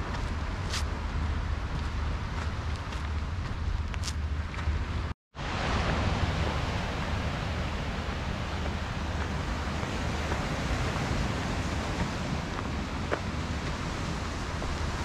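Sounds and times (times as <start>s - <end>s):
wind rumbling on microphone: 0.0s - 15.0s
waves breaking on rocky shore: 5.4s - 15.0s.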